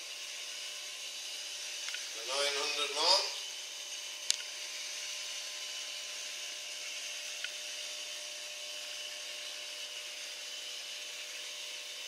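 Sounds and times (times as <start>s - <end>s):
small tick: 4.2s - 4.5s, 7.4s - 7.6s.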